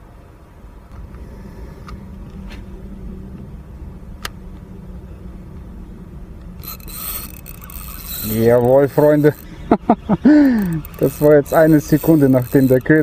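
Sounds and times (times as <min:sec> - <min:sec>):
river water flowing: 0:06.6 - 0:09.6, 0:10.3 - 0:12.9.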